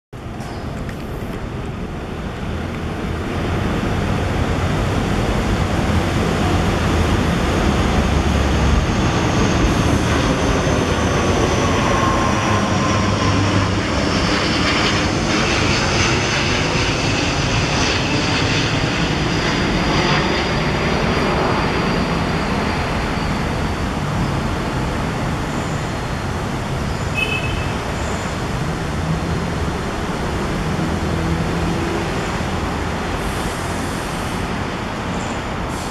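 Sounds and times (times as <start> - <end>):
airplane passing overhead: 0.2 - 35.9.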